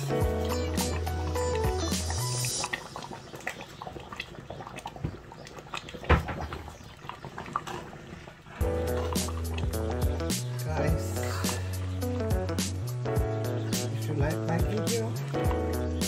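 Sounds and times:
background music: 0.0 - 3.1, 8.6 - 16.0
soup simmering and bubbling: 0.0 - 14.0.

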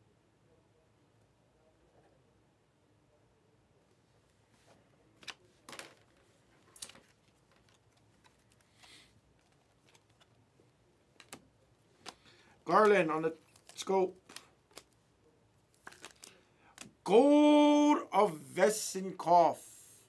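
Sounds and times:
trading cards being flipped: 5.2 - 10.4, 11.1 - 15.0, 15.7 - 17.0.

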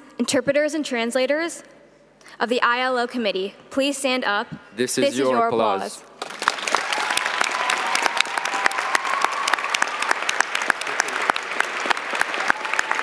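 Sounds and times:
crowd applauding: 6.2 - 13.0.

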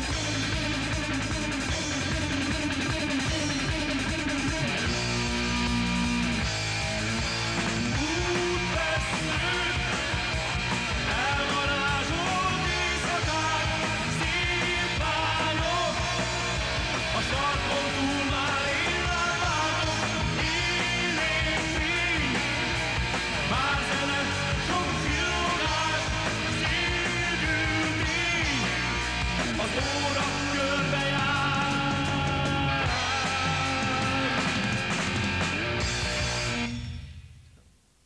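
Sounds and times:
hard rock band playing: 0.0 - 37.2.

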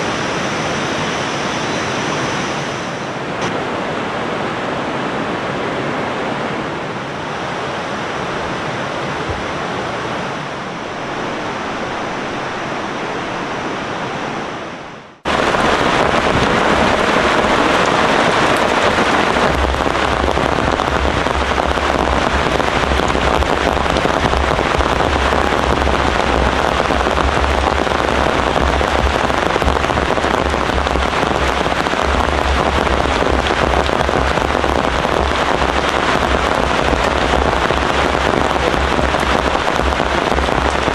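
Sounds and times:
river water rushing: 0.0 - 40.9
heavy rain pattering: 15.1 - 40.9
deep rumble: 15.3 - 40.9.

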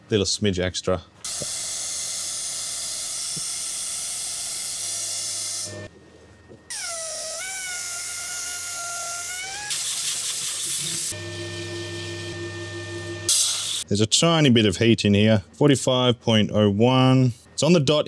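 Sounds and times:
compressed air gun hissing: 9.7 - 11.1, 13.3 - 13.8
steady hum: 10.6 - 13.9.

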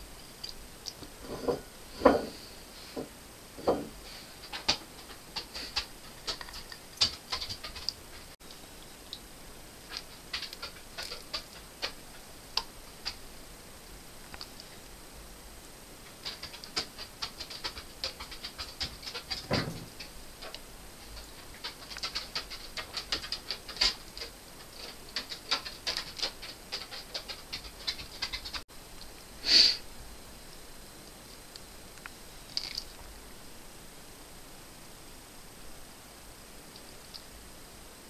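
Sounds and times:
dog claws clicking on hard floor: 4.4 - 8.4, 9.9 - 13.2, 16.1 - 20.6, 21.2 - 28.6.

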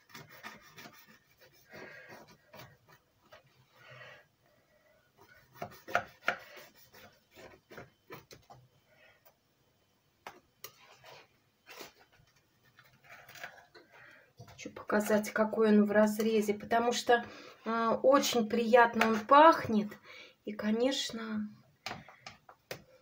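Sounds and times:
knife sawing through crust: 0.0 - 2.8, 5.2 - 7.6.

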